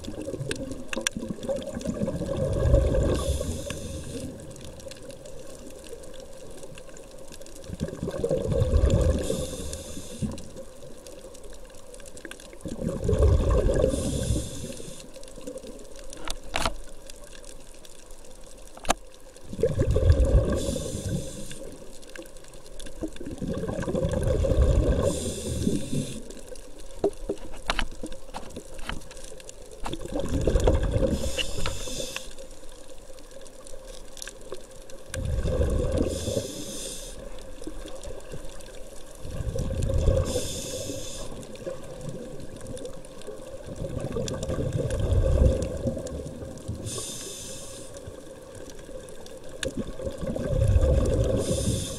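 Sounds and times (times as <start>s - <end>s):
regulator bubbling breaths underwater: 0.0s - 4.8s, 7.6s - 10.8s, 12.6s - 15.6s, 19.4s - 21.9s, 23.0s - 26.5s, 29.9s - 32.6s, 35.1s - 38.4s, 39.1s - 49.0s, 49.6s - 51.9s.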